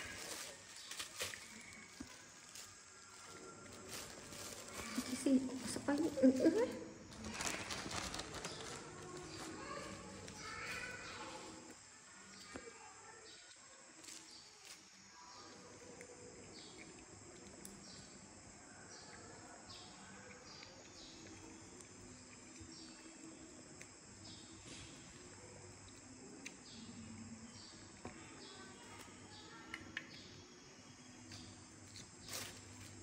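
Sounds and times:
insects chirping: 0.0s - 33.0s.

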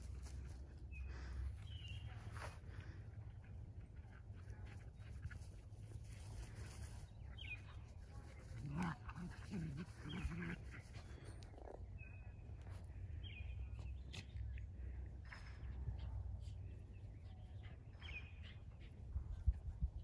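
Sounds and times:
dogs growling in play: 8.4s - 11.7s.

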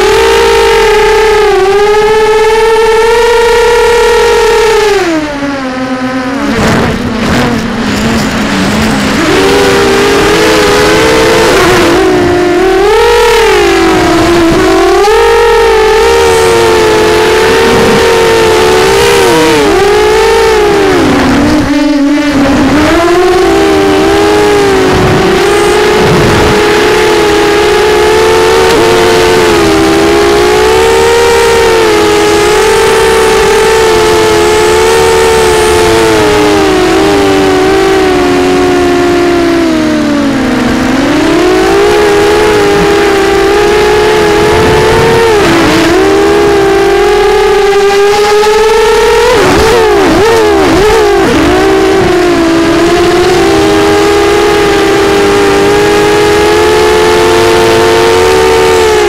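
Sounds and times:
quadcopter motors buzzing whine: 0.0s - 59.0s.

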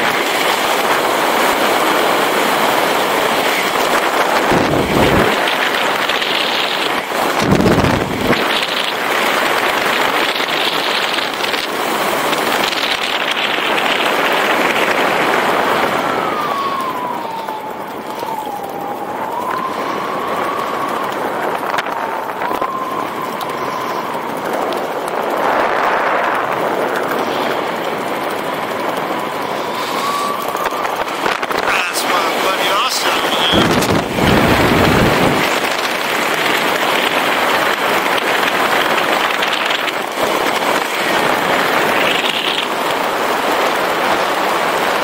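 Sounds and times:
wind rushing past microphone: 0.0s - 45.0s
thin wavering whistle: 29.5s - 31.0s.

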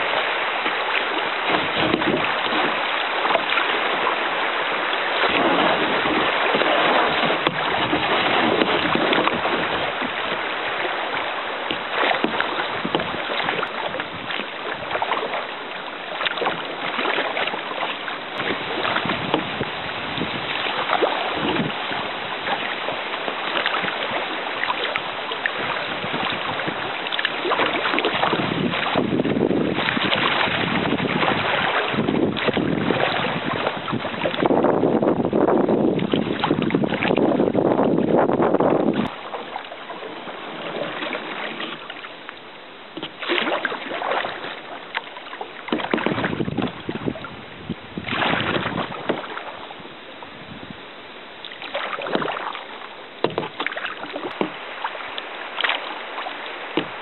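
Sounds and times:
river water rushing and splashing: 0.0s - 57.0s
wind buffeting microphone: 1.4s - 2.8s, 5.2s - 10.5s, 11.7s - 15.2s, 18.2s - 23.1s, 25.6s - 41.7s, 45.8s - 50.9s.

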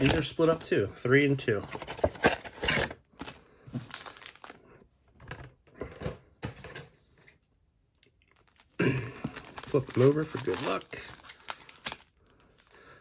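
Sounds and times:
foil packs crinkling and rustling: 0.0s - 0.8s, 1.7s - 4.7s, 8.4s - 13.0s.

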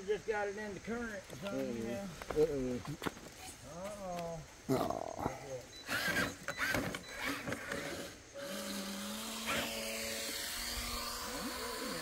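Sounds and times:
electric motor whining: 5.8s - 12.0s.

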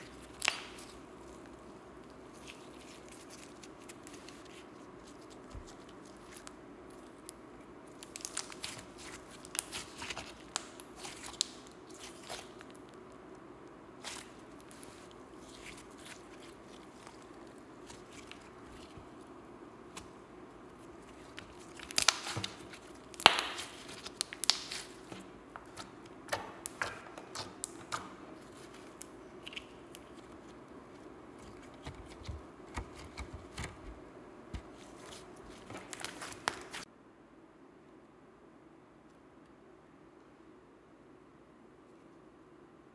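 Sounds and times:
hands squeezing sticky slime: 0.0s - 13.0s, 14.0s - 19.2s, 19.9s - 30.6s, 34.6s - 36.8s.

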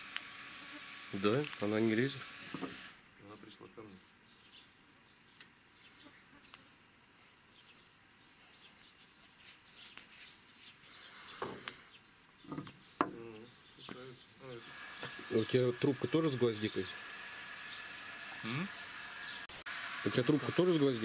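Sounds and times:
faint bird chirps: 3.1s - 15.6s.

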